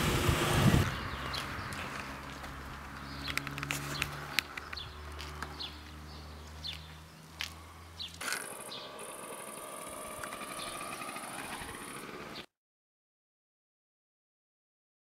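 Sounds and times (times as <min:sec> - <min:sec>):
birds chirping: 0:00.7 - 0:12.5.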